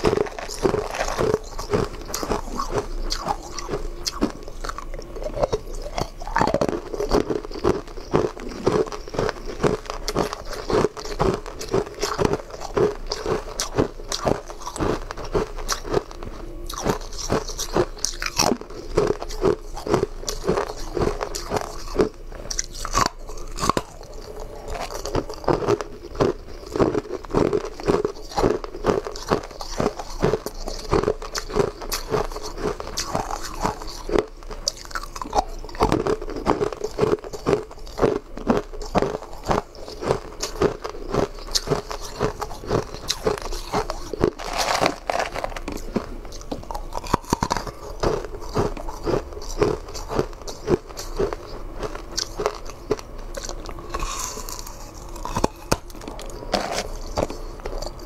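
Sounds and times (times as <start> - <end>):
person crunching ice: 0.0 - 58.0.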